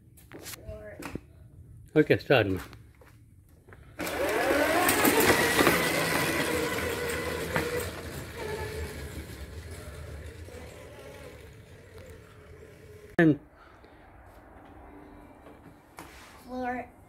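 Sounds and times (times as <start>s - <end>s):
electric motor whining: 4.0s - 13.2s
go-kart knocks: 4.8s - 12.4s.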